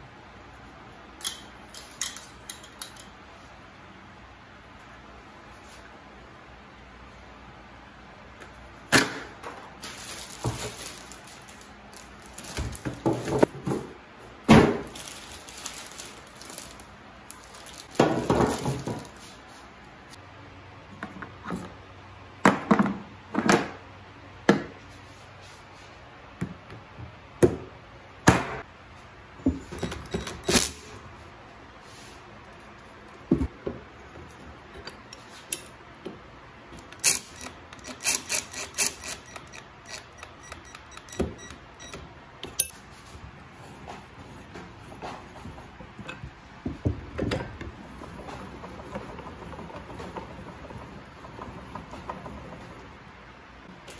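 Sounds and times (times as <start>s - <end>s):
knocks and clacks of handled parts: 8.9s - 13.9s, 14.6s - 19.3s, 32.5s - 42.8s
plastic packaging crinkling: 9.8s - 13.3s, 14.8s - 19.2s.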